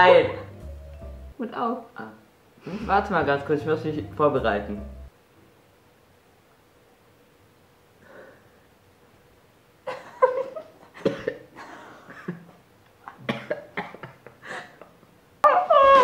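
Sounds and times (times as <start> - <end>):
person coughing and gagging: 11.0 - 11.5, 13.1 - 14.2.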